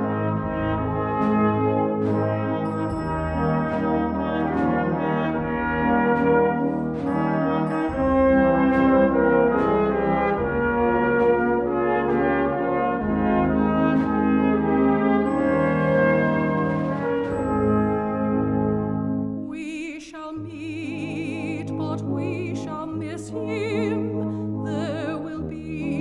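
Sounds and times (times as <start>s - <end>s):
steady beat: 0.0s - 17.9s
brass band playing chords: 0.0s - 19.4s.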